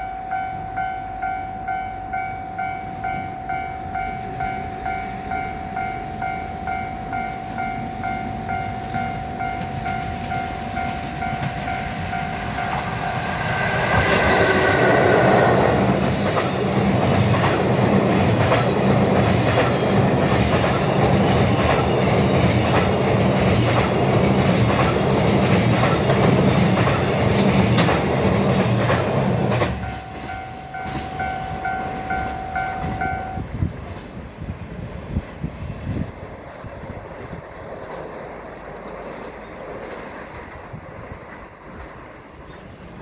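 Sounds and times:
freight train rolling past: 0.0 - 43.0
ringing tone with pulsing note: 29.8 - 33.4.

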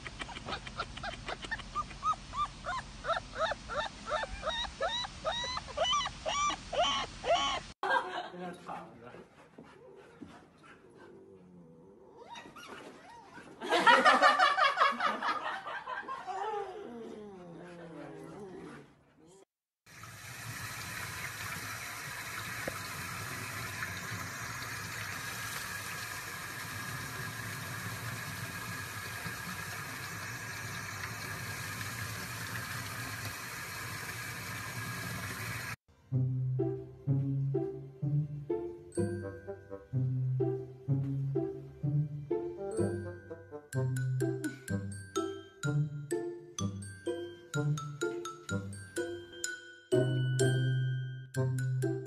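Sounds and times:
puppy yipping and whimpering: 0.3 - 7.8, 12.1 - 13.5
faucet running water: 19.8 - 35.8, 42.8 - 50.8.

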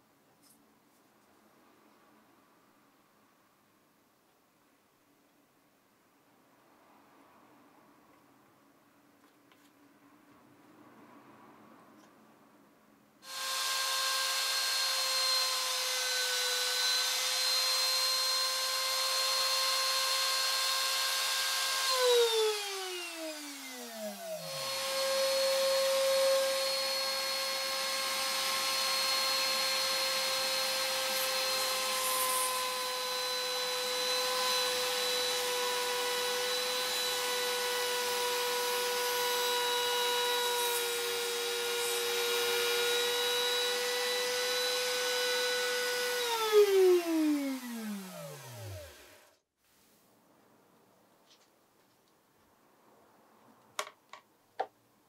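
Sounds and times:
router motor whining: 13.2 - 49.4.

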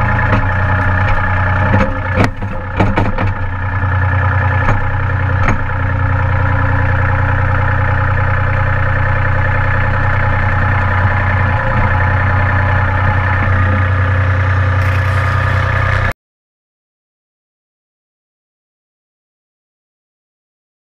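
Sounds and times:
tractor diesel engine running: 0.0 - 16.1.

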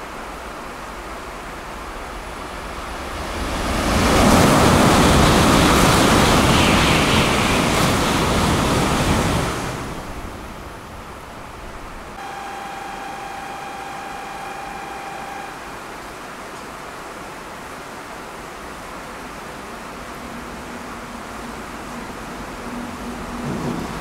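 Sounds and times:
heavy rain hissing: 0.1 - 24.0
train passing at high speed: 0.2 - 16.5, 17.1 - 24.0
steady electronic tone: 12.2 - 16.3.

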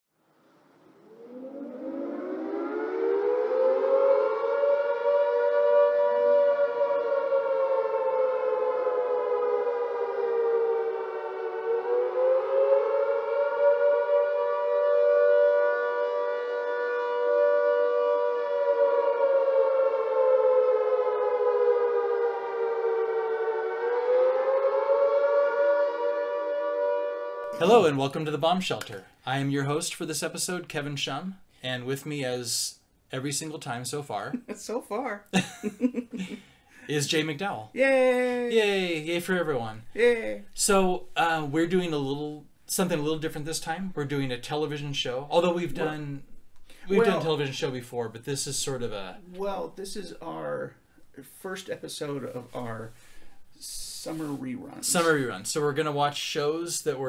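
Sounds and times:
air-raid siren wailing: 0.7 - 28.3, 44.6 - 46.2, 46.8 - 47.7, 48.6 - 50.7.

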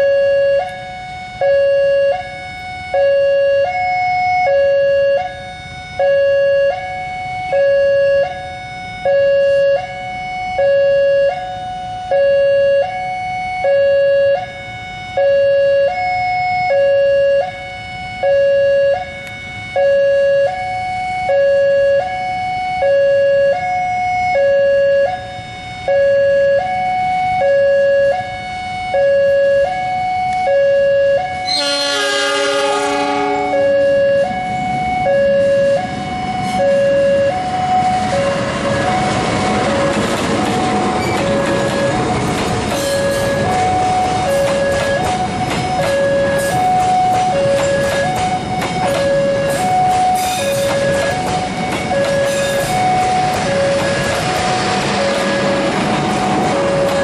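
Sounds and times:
level crossing two-tone alarm: 0.0 - 57.0
locomotive engine rumble: 30.3 - 57.0
locomotive air horn blast: 30.4 - 38.4.

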